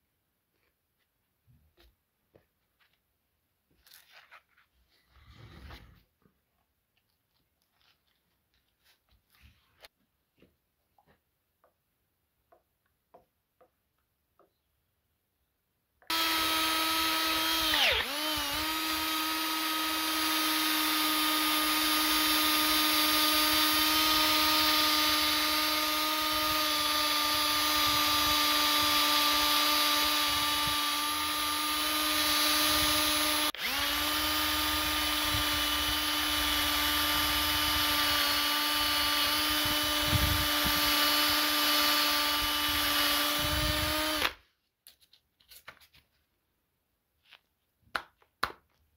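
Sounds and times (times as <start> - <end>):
electric drill whine: 16.1 - 44.4.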